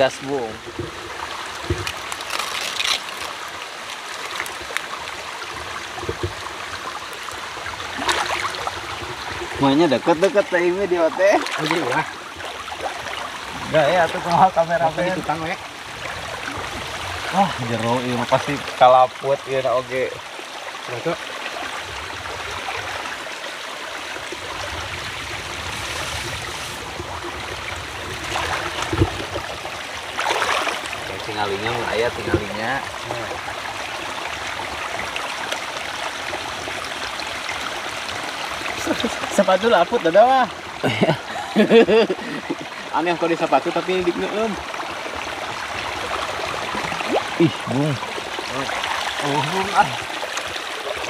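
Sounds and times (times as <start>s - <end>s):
water trickling: 0.0s - 51.0s
water sloshing around legs: 7.9s - 14.3s, 28.2s - 31.3s
hands splashing in water: 30.2s - 30.9s.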